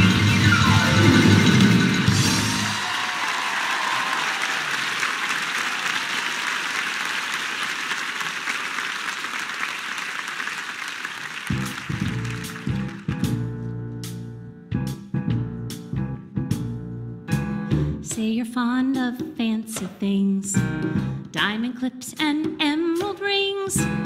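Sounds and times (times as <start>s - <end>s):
band playing final chord: 0.0s - 2.8s
audience applauding: 0.6s - 13.5s.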